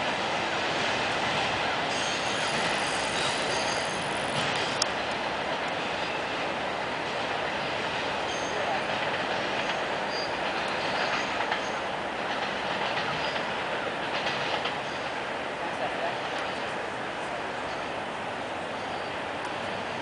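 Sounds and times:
train wheels rumbling on rail: 0.0s - 20.0s
high wheel squeals: 1.8s - 4.8s, 10.1s - 11.8s, 18.7s - 19.3s.

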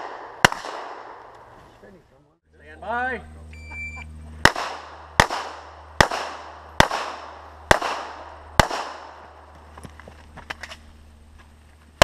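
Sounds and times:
pistol shots with echo: 0.0s - 1.2s, 4.4s - 9.4s.

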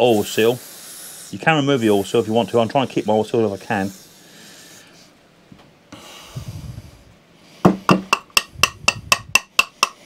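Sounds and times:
hammer tapping on metal casing: 7.7s - 10.0s.

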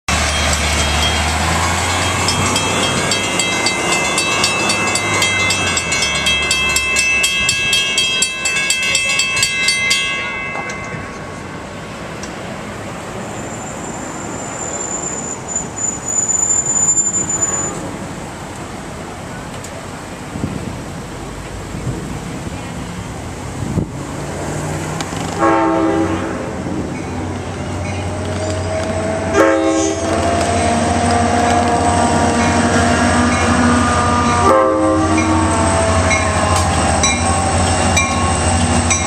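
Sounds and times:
truck engine rumbling: 0.1s - 14.3s
railroad crossing bells ringing: 0.1s - 17.9s, 26.9s - 30.8s, 31.9s - 39.0s.

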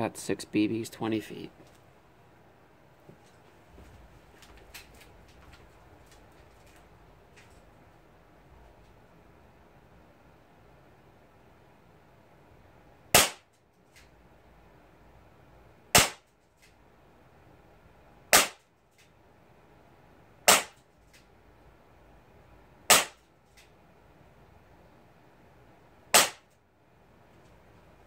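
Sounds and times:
bb revolver shots: 13.1s - 13.5s, 15.9s - 16.3s, 18.3s - 18.6s, 20.5s - 20.8s, 22.9s - 23.2s, 26.1s - 26.5s.

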